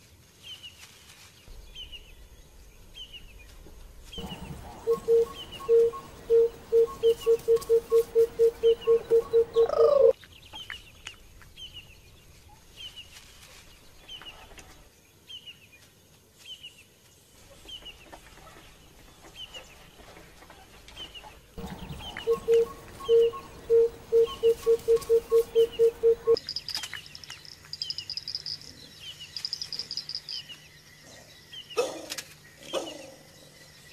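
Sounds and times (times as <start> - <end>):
faint high chirps: 4.2 - 10.2, 21.6 - 30.7.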